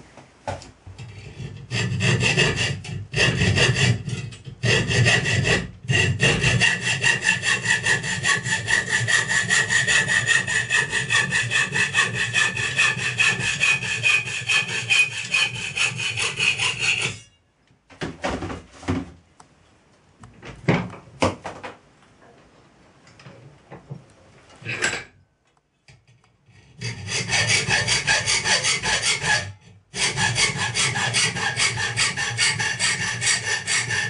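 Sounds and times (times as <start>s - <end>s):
hacksaw cutting metal: 1.0s - 17.4s, 26.7s - 34.0s.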